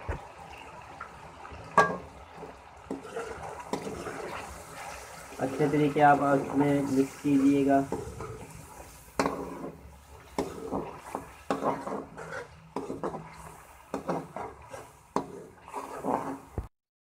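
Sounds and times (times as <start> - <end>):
spatula scraping a wok: 2.9 - 16.7.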